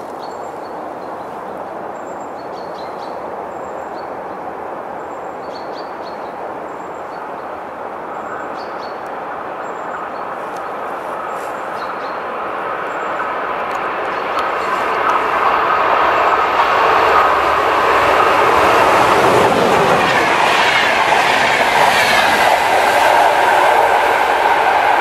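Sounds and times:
train rumbling on rails: 0.0s - 25.0s.

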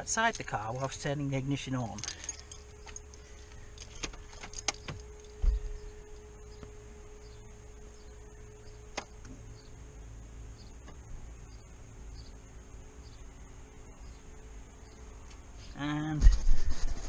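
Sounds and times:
electrical hum: 0.0s - 17.0s
dull thump: 4.8s - 5.8s.

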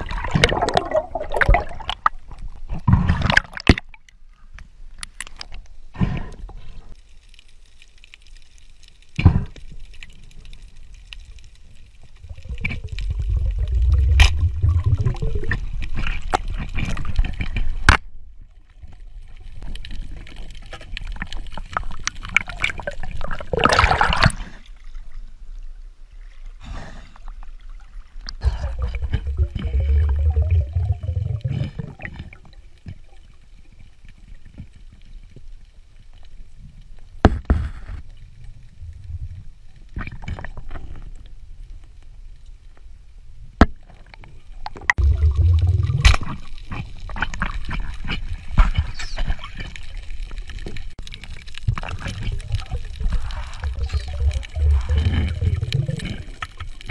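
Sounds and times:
underwater bubbling and gurgling: 0.0s - 56.9s.

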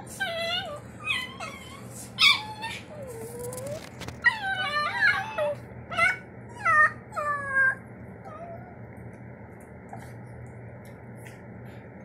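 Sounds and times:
small dogs whining and yelping: 0.0s - 8.8s.

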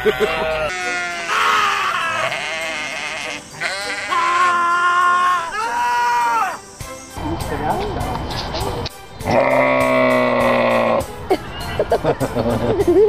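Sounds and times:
sheep bleating: 0.0s - 4.9s.

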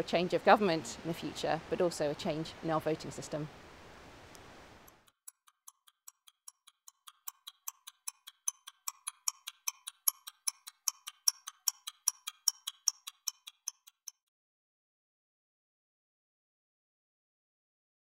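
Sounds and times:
clock ticking: 4.9s - 14.3s.

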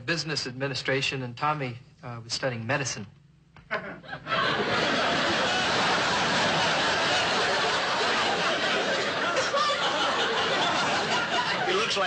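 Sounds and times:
audience laughing: 3.7s - 12.0s.

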